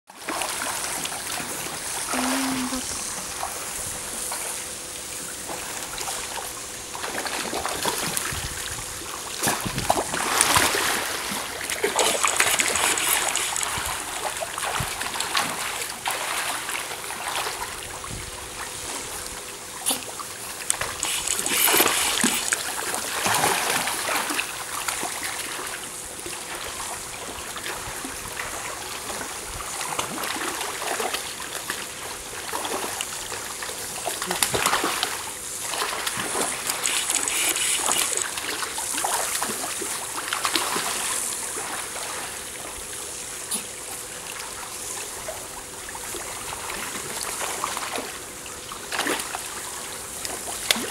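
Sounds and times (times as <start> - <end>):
penguins splashing in water: 20.7 - 25.3.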